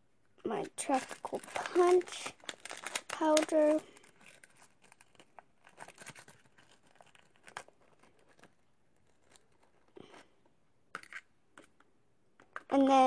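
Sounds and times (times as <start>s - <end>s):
paper packet rustling: 0.5s - 10.4s.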